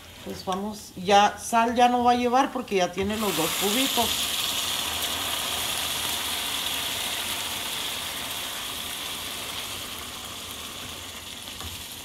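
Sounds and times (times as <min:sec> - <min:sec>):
pan sizzling with steady hiss: 0:00.0 - 0:12.0
water poured into hot pan: 0:03.2 - 0:12.0.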